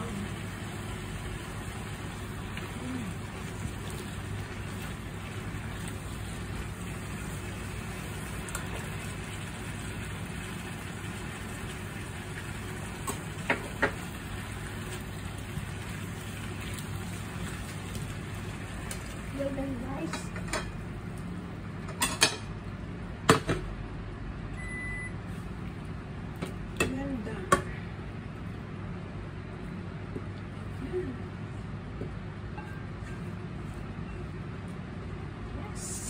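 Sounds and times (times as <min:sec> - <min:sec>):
vegetables sizzling in a pan: 0:00.0 - 0:20.8.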